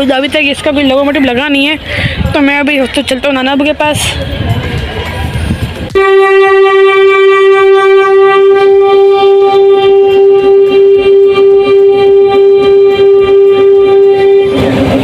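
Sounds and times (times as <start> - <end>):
locomotive air horn blast: 5.9 - 15.0.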